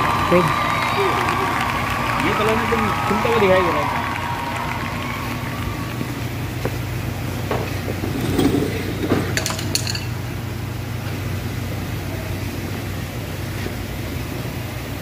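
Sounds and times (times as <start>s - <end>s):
low mechanical hum: 0.0s - 15.0s
light metallic clinks: 9.3s - 10.2s.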